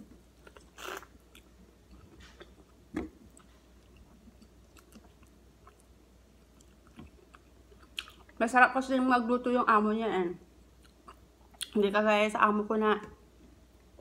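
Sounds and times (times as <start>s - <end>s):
person chewing and biting: 0.4s - 8.3s.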